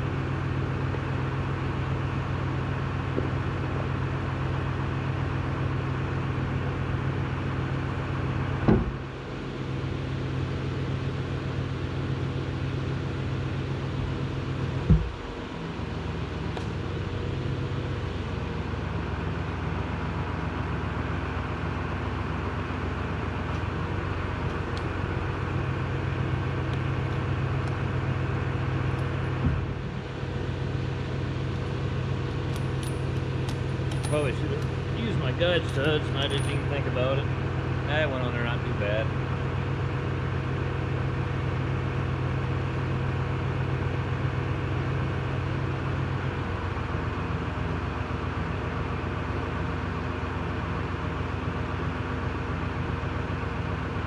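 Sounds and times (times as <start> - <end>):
steady mechanical hum: 0.0 - 54.0
sharp knocks: 8.6 - 9.0, 14.8 - 15.2.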